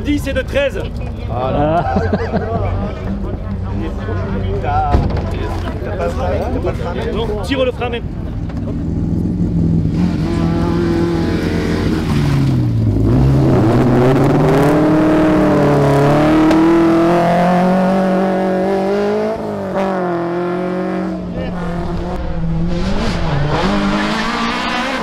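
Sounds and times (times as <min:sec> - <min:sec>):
rally car engine accelerating: 0:01.6 - 0:25.0.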